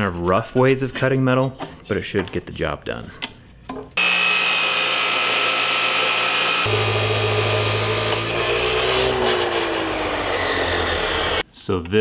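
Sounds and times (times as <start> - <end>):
chop saw grinding through steel: 4.0 - 11.4.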